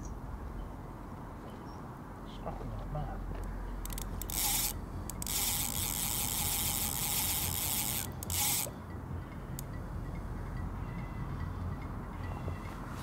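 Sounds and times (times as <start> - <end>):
fishing reel drag ratcheting buzz: 3.8 - 8.8
reel clicks: 3.8 - 8.8.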